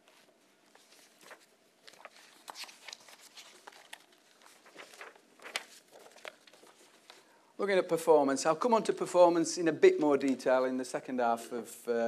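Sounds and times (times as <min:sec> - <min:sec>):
paper rustling and clicking: 0:00.1 - 0:07.2.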